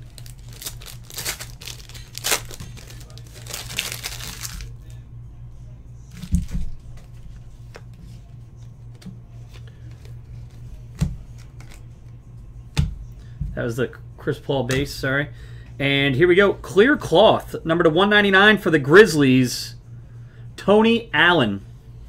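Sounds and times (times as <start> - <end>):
plastic wrapper crinkling and tearing: 0.0 - 5.0.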